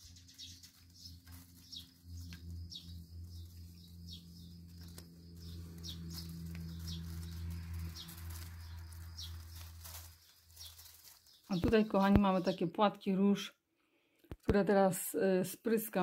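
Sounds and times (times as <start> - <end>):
steady low hum: 0.0 - 11.0
small bird chirping: 0.0 - 12.7.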